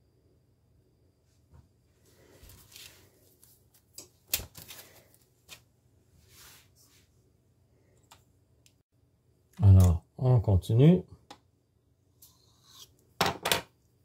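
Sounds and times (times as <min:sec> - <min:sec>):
hands rustling on kitchen counter: 0:01.4 - 0:07.3.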